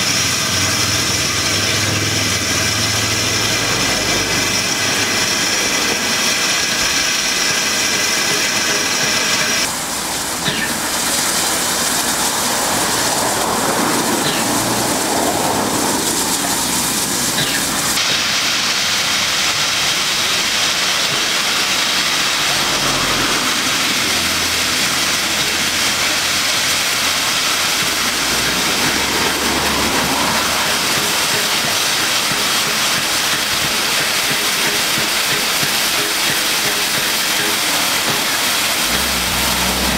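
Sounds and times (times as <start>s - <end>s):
steam hissing from locomotive: 0.0s - 39.9s.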